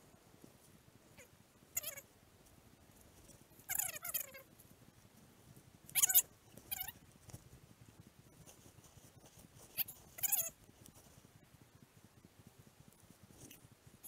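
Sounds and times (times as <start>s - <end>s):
animal high-pitched calls: 1.2s - 2.0s, 3.7s - 4.5s, 5.9s - 7.0s, 9.8s - 10.6s.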